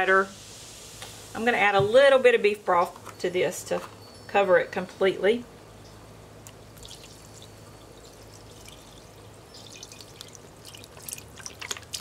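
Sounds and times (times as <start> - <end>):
broth pouring into pot: 0.1 - 1.4, 6.8 - 12.0.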